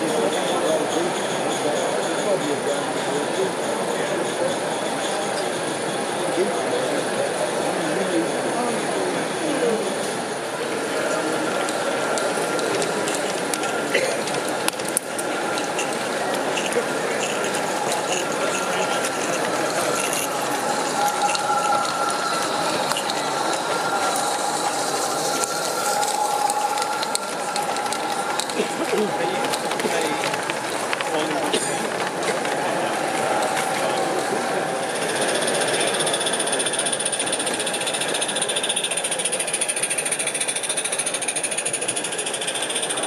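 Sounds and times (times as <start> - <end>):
model locomotive clatter: 0.0 - 43.0
steam hissing: 9.0 - 36.1.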